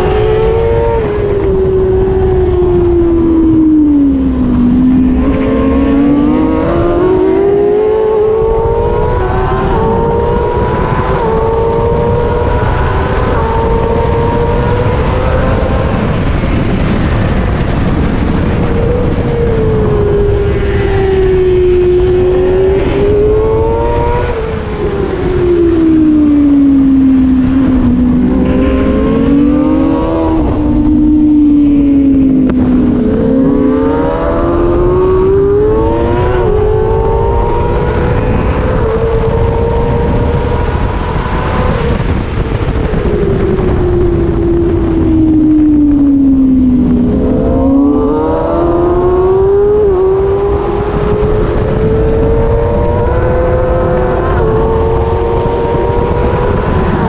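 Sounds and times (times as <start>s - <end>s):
motorcycle engine revving: 0.0s - 57.0s
steady rushing noise: 0.0s - 57.0s.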